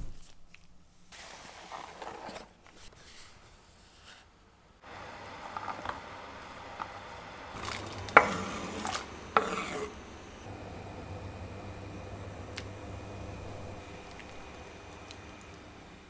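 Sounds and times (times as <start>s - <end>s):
knife scraping wooden board: 8.1s - 10.0s.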